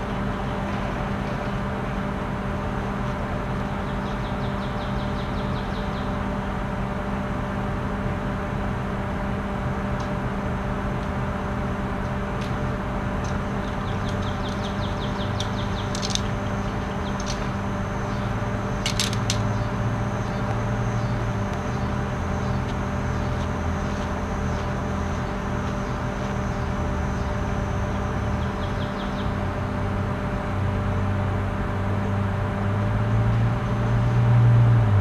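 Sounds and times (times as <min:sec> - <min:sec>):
low mechanical hum: 0:00.0 - 0:35.0
birds chirping and trilling: 0:03.6 - 0:06.3, 0:13.2 - 0:29.9.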